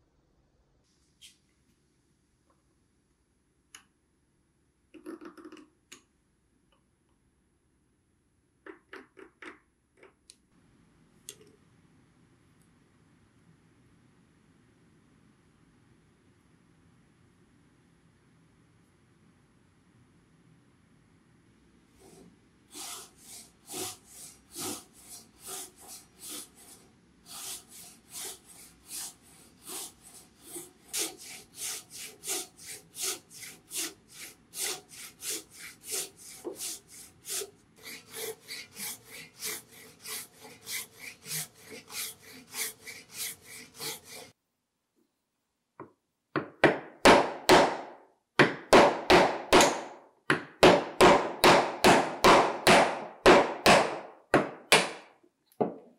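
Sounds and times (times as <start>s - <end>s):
hand saw cutting wood: 22.0s - 44.4s, 48.8s - 49.9s, 50.6s - 54.0s
hammer blows on a chisel: 46.8s - 55.1s.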